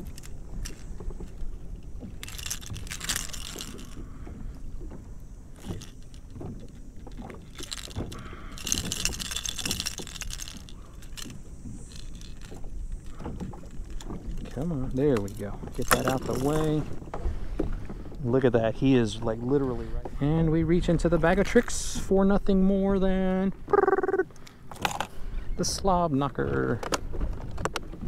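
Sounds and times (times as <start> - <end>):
high hissing rustle: 0.0 - 14.3.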